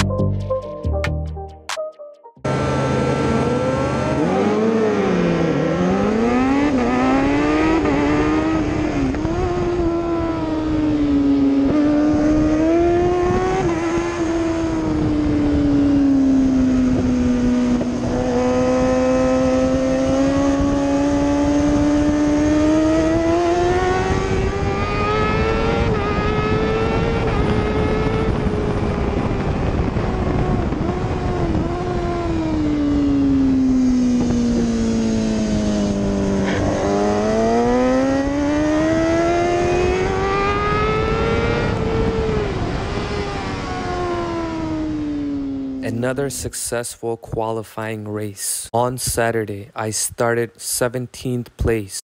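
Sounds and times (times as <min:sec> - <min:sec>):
other motorcycle engines: 0:02.4 - 0:49.8
race motorcycle engine: 0:02.4 - 0:51.9
wind rush: 0:06.9 - 0:46.3.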